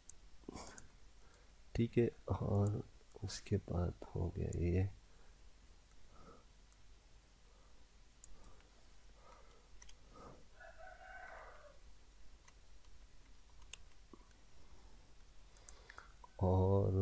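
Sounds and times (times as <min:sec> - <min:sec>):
computer mouse clicks: 0:08.2 - 0:08.7, 0:09.3 - 0:10.0, 0:12.4 - 0:14.5, 0:15.2 - 0:16.4.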